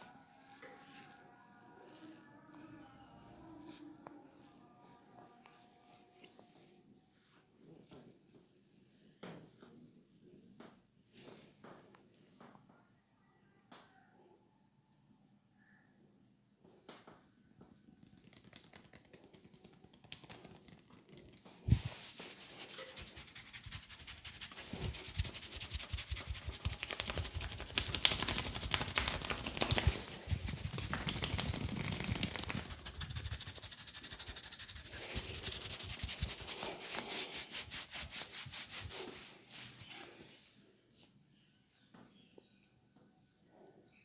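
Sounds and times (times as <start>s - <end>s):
hands scratching through hair: 0.0s - 8.9s, 18.0s - 41.1s.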